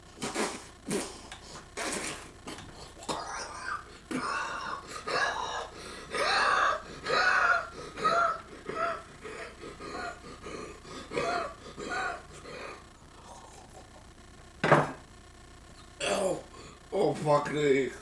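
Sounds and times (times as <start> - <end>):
man gasping: 4.0 - 6.2, 6.8 - 13.6.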